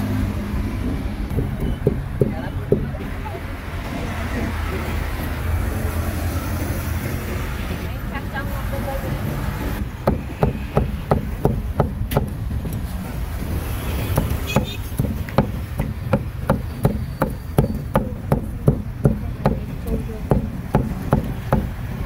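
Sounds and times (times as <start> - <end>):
low rumble of street traffic: 0.0 - 22.0
cleaver chopping meat on wood: 14.1 - 21.8.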